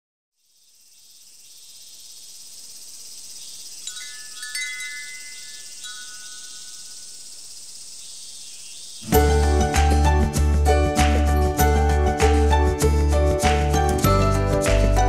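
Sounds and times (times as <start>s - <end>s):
steady high hiss: 0.4s - 9.2s
glass wind chime tinkling: 3.8s - 7.1s.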